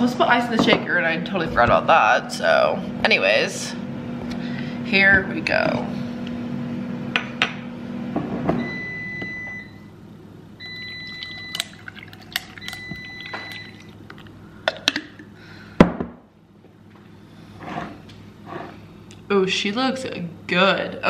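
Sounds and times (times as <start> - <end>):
liquid pouring over ice: 11.0 - 14.4
ice clinking on glass: 11.1 - 14.3.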